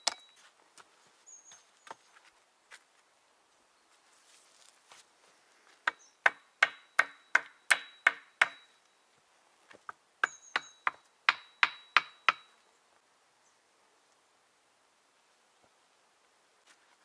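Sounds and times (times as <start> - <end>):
axe chopping wood: 5.8 - 8.6.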